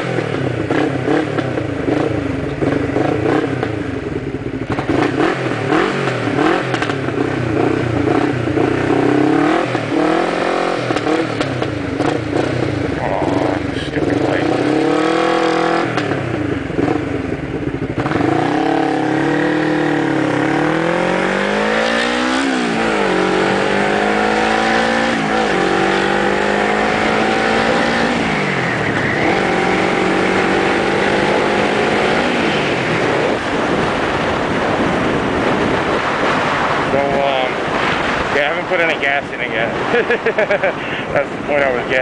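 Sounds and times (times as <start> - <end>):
motorcycle engine accelerating: 0.0 - 42.0
rushing air noise on microphone: 32.1 - 42.0.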